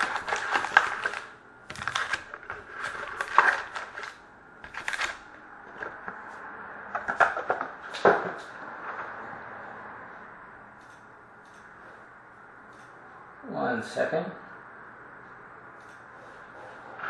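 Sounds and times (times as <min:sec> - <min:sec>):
wrappers crinkling: 0:00.0 - 0:05.4.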